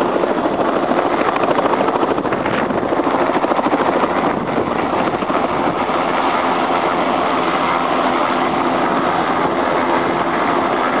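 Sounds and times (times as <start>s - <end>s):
helicopter turbine and rotor: 0.0s - 11.0s.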